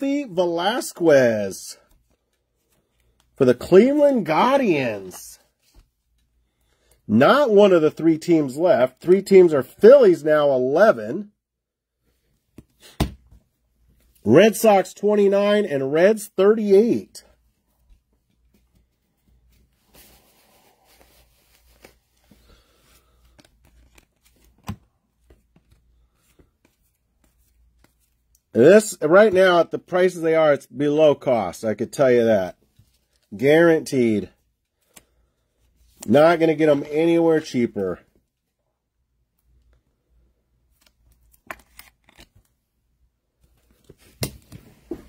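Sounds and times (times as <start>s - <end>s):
cards sliding and flicking: 23.2s - 28.2s, 40.7s - 42.5s.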